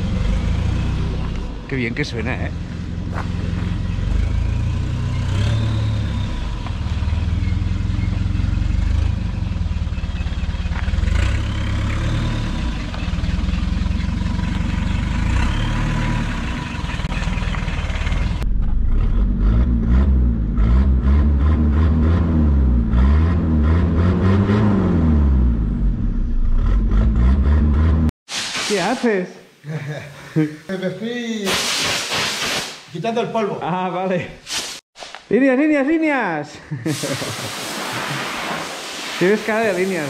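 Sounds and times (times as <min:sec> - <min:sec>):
unsilenced diesel engine exhaust: 0:00.0 - 0:28.1
engine revving inside cabin: 0:18.2 - 0:28.2.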